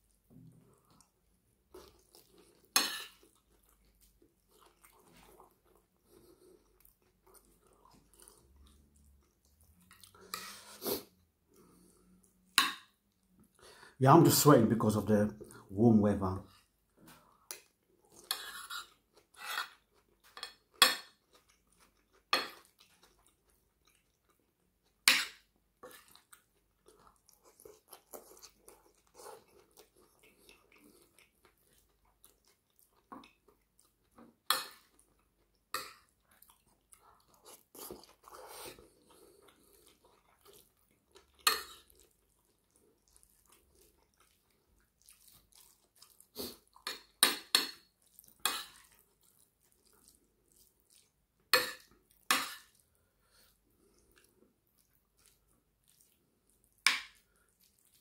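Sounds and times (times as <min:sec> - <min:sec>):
chewing and mouth sounds: 0:00.6 - 0:12.5, 0:16.5 - 0:58.0.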